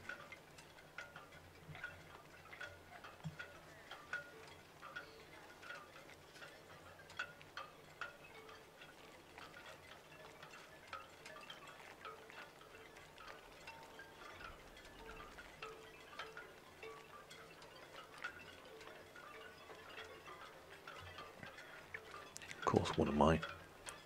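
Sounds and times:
soft chime-like music: 0:00.0 - 0:24.0.

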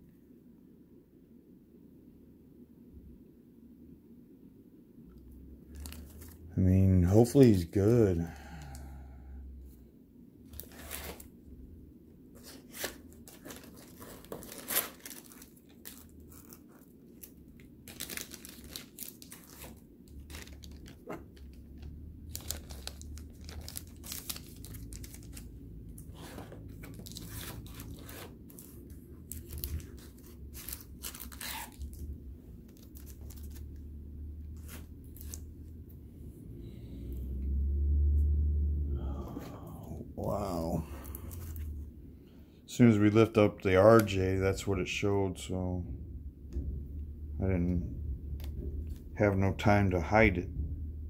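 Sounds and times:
foil wrapper crinkling and tearing: 0:05.7 - 0:06.5, 0:10.5 - 0:11.3, 0:12.4 - 0:33.8, 0:34.6 - 0:35.6.

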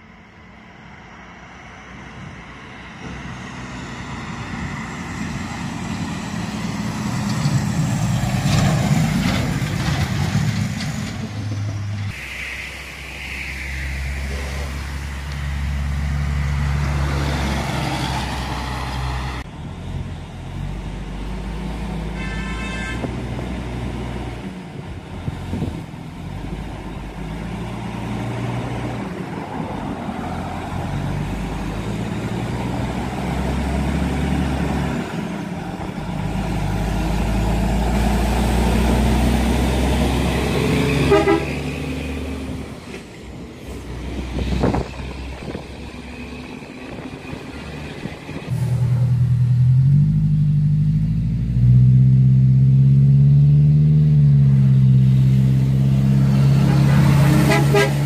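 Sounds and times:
truck engines running: 0:00.0 - 0:58.0
vehicle horn toot: 0:22.2 - 0:23.1, 0:41.0 - 0:41.6, 0:57.3 - 0:58.0.

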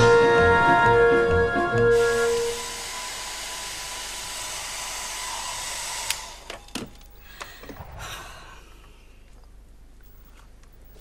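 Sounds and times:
hair dryer blowing: 0:01.7 - 0:06.5.

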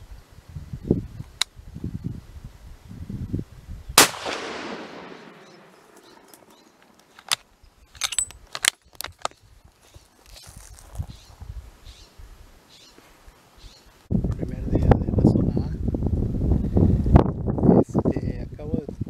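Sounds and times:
rifle shot echoing: 0:04.0 - 0:06.6.

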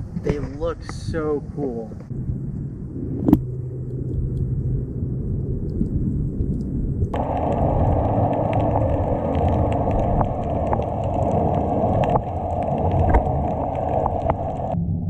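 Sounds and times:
muffled underwater rushing rumble: 0:00.0 - 0:15.0
sharp underwater clicks and crackles: 0:02.0 - 0:14.8.

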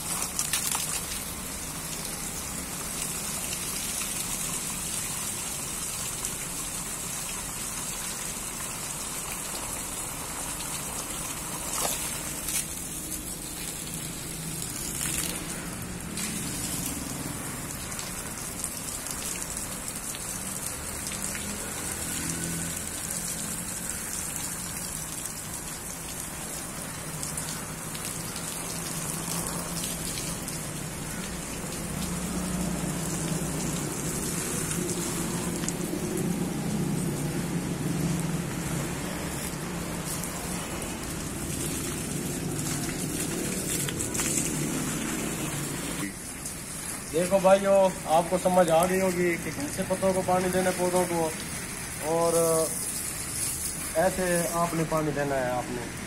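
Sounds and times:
water spraying on leaves: 0:00.0 - 0:56.0.

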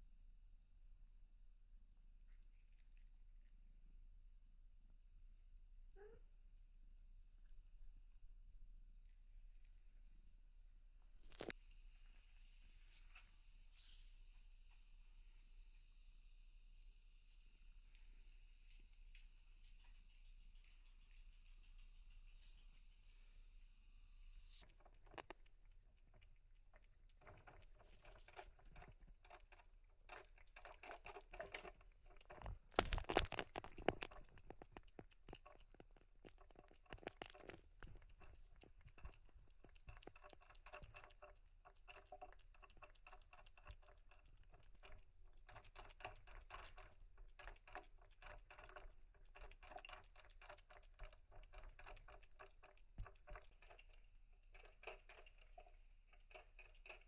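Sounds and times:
clatter: 0:11.2 - 0:11.6, 0:27.2 - 0:57.0
cat licking water bottle nozzle: 0:24.3 - 0:57.0.

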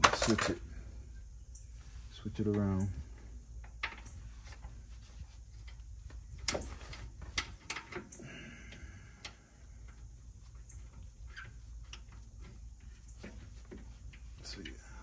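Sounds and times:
metallic clicks and scrapes of bolt: 0:00.0 - 0:00.6, 0:06.4 - 0:08.2.

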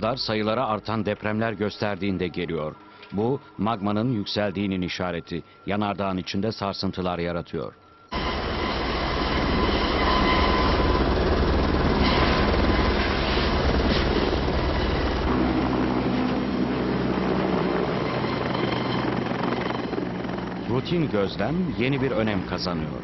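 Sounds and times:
helicopter rotor and turbine: 0:08.1 - 0:23.0.

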